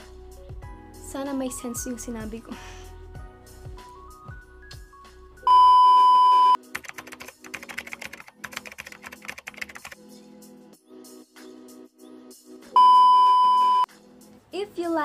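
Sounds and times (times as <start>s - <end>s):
light background music: 0.0s - 15.0s
loud high beep: 5.5s - 6.6s, 12.8s - 13.9s.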